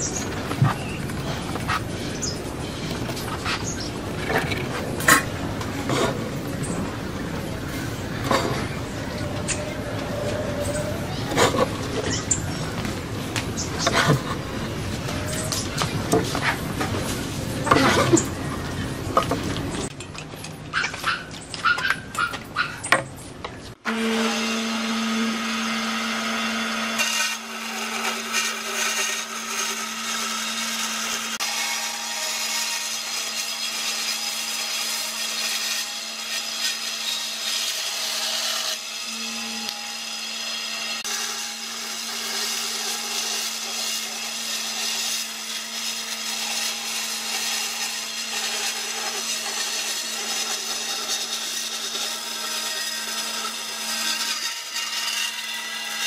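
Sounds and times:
saw blade rasping through wood: 0:00.0 - 0:06.8, 0:07.7 - 0:12.8, 0:13.7 - 0:18.4, 0:23.9 - 0:56.0
band saw motor hum: 0:23.8 - 0:56.0.

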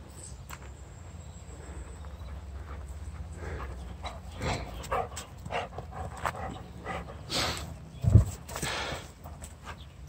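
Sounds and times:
dog panting: 0:02.2 - 0:07.3.

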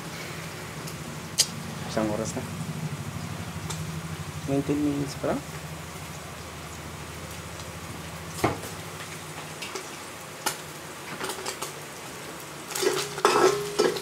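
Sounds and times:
garlic sizzling in oil: 0:00.0 - 0:14.0
oil popping: 0:03.2 - 0:11.8
metal spatula scraping wok: 0:12.8 - 0:14.0.

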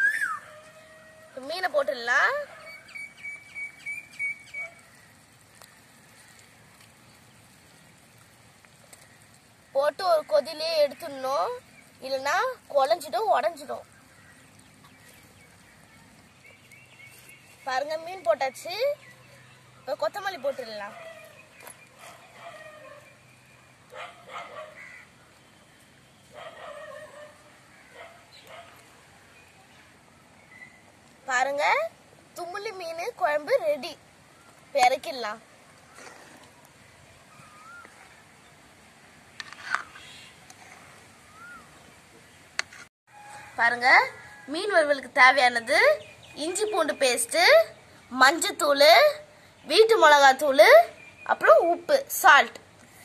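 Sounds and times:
bird chirping rapidly: 0:02.1 - 0:05.0.

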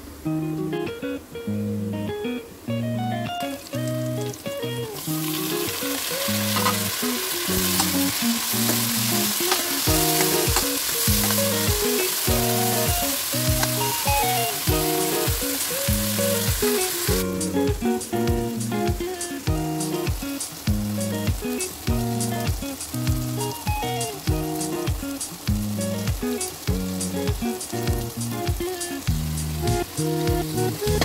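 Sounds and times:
background music: 0:00.4 - 0:31.0
onions sizzling in oil: 0:03.0 - 0:31.0.

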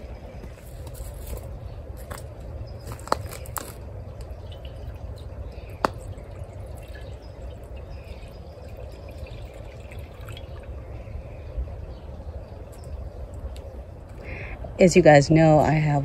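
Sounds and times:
water trickling and splashing: 0:02.9 - 0:11.2.

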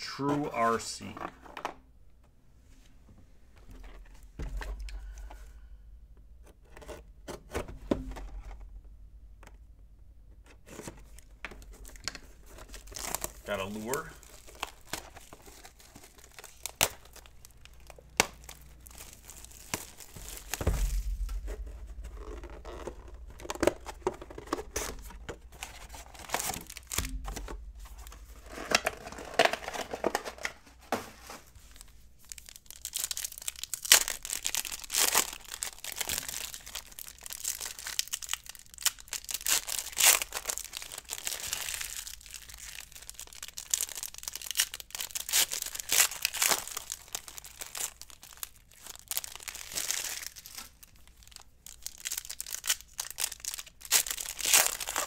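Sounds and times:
foil wrappers tearing and crinkling: 0:10.8 - 0:30.6, 0:31.3 - 0:55.0.

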